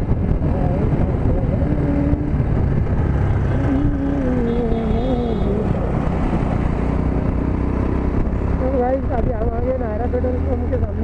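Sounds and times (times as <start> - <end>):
motorcycle engine rumbling: 0.0 - 11.0
wind noise on microphone: 0.0 - 11.0.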